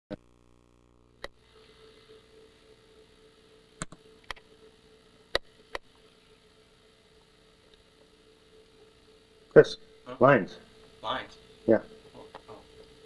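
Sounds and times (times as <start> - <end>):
low buzzing hum: 0.1 - 13.0
tape hum and hiss: 0.1 - 13.0
sharp clicks: 3.8 - 4.5.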